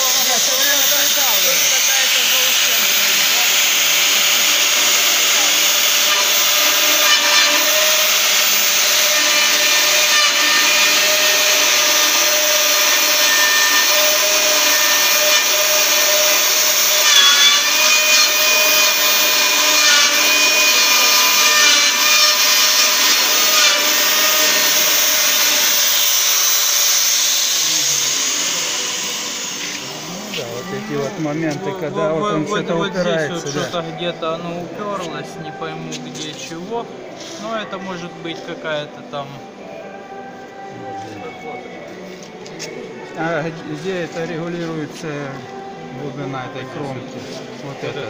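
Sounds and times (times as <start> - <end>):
milling cutter rasping metal: 0.0 - 30.5.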